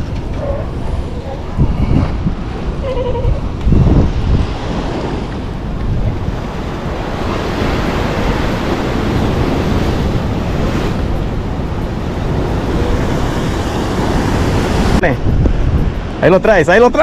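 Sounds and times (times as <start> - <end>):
wind buffeting microphone: 0.0 - 17.0
surf washing against rocks: 3.4 - 17.0.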